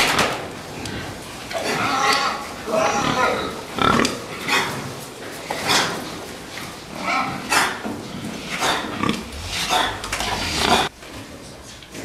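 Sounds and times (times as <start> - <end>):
pigs grunting: 0.8 - 10.9
pigs squealing: 1.6 - 4.8, 7.0 - 10.9.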